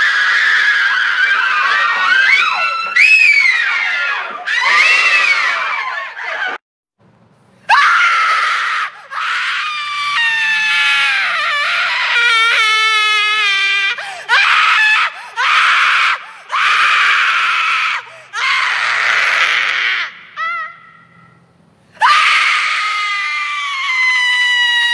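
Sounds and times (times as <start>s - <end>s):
woman screaming: 0.0s - 6.6s, 7.7s - 21.0s, 22.0s - 24.9s.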